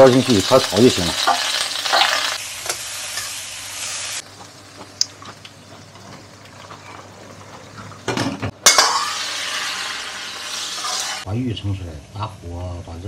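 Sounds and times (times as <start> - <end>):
food sizzling in a wok: 0.0 - 7.4, 8.6 - 11.3
metal spatula scraping: 8.6 - 11.3.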